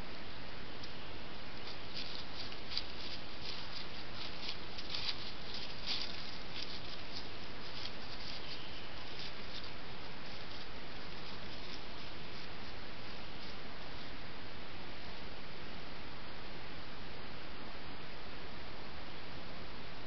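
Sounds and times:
steady hiss: 0:00.0 - 0:20.0
footsteps rustling dry leaves: 0:00.8 - 0:14.4.

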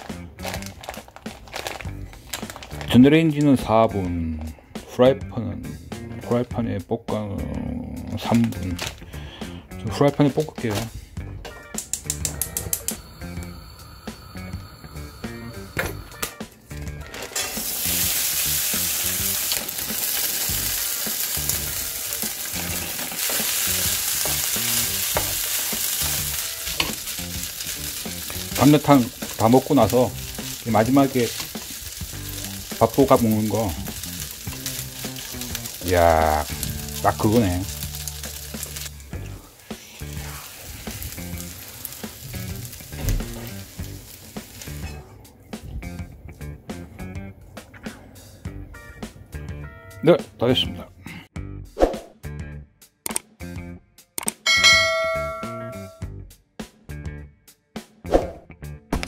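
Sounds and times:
rice sizzling in a frying pan: 0:17.1 - 0:39.0, 0:39.6 - 0:44.8.

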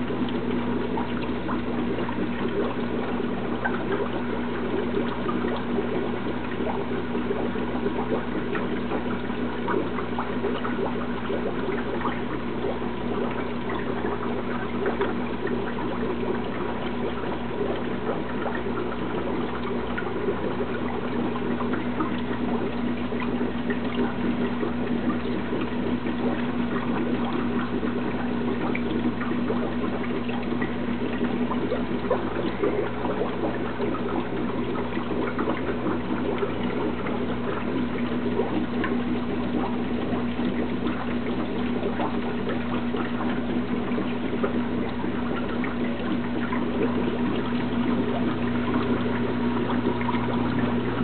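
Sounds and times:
filter motor hum: 0:00.0 - 0:51.0
water trickling and splashing: 0:00.0 - 0:51.0.

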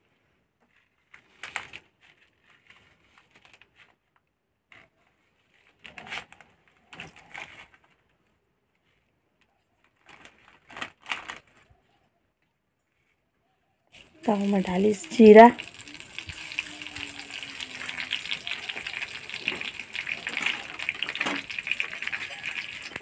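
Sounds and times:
plastic packet crinkling: 0:10.0 - 0:11.6, 0:14.0 - 0:23.0.

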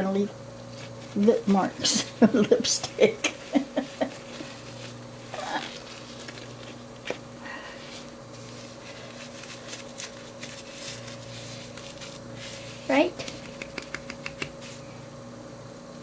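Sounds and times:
steady low hum: 0:00.0 - 0:16.0
diaper rustling: 0:00.7 - 0:14.9.

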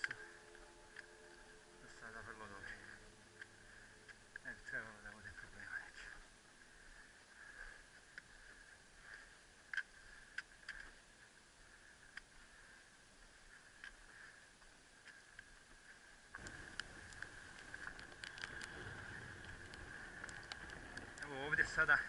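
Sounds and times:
wind rumble on microphone: 0:16.3 - 0:22.0.

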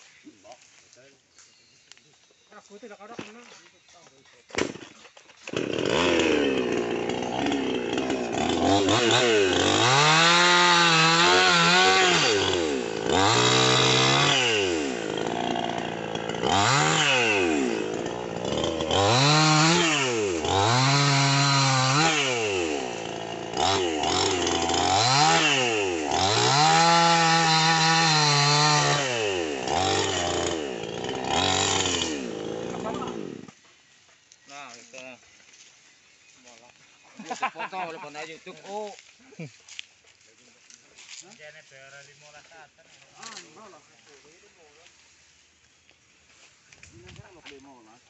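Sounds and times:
chainsaw revving: 0:05.4 - 0:33.6.

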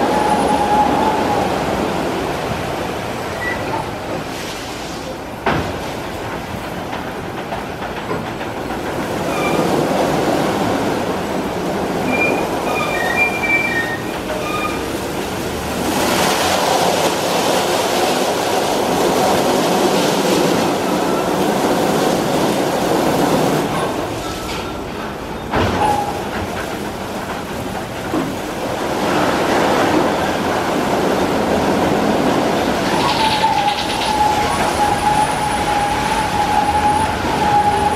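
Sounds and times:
short squeaks: 0:03.3 - 0:03.9, 0:12.1 - 0:14.9.

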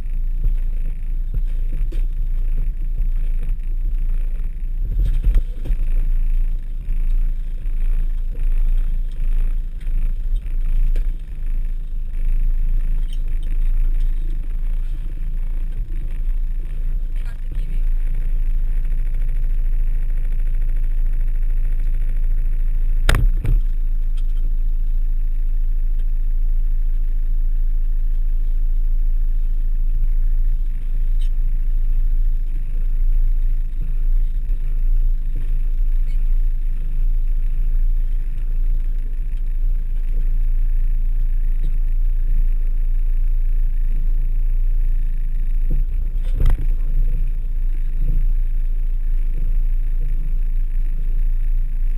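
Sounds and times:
van engine running: 0:00.0 - 0:51.9
sharp knock: 0:23.1 - 0:23.7.

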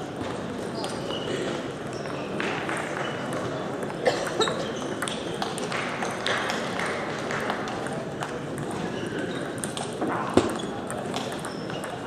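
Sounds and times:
murmur of voices: 0:00.0 - 0:12.0
table tennis balls clicking: 0:04.8 - 0:12.0.

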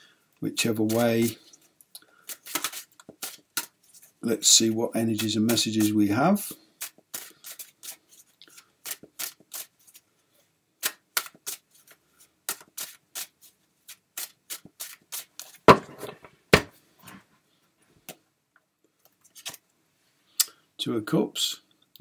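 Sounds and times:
cards being shuffled: 0:02.3 - 0:04.2, 0:06.8 - 0:10.0, 0:10.8 - 0:16.2, 0:19.0 - 0:19.6.

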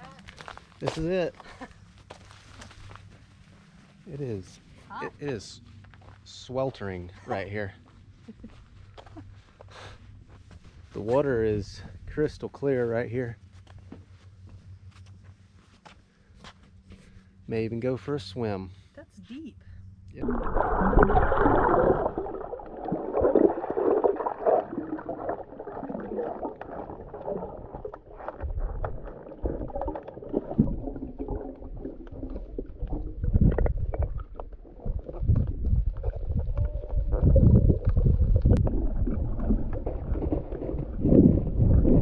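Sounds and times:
water sloshing and splashing: 0:20.2 - 0:42.0.

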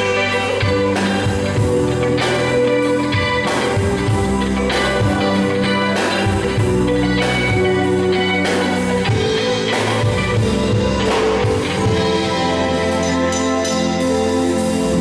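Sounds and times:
live rock band playing: 0:00.0 - 0:15.0.

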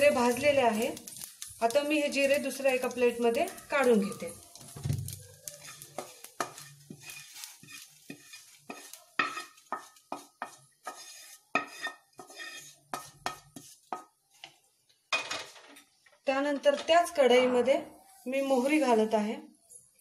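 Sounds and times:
spatula scraping pan: 0:00.0 - 0:14.6.

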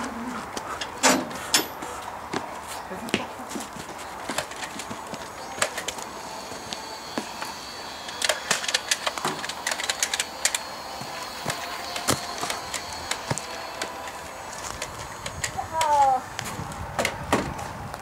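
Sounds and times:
toy dart blaster clicking: 0:08.0 - 0:16.0.

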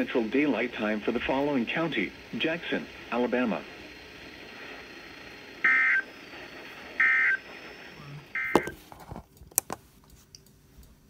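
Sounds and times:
buzzing data tones: 0:00.0 - 0:08.7
radio being handled: 0:08.4 - 0:10.3.

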